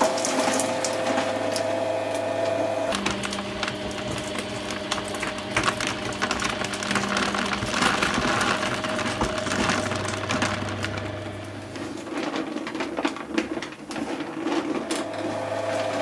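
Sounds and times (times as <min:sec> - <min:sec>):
shredder motor humming: 0:00.0 - 0:16.0
rubber crackling and snapping: 0:02.9 - 0:15.0.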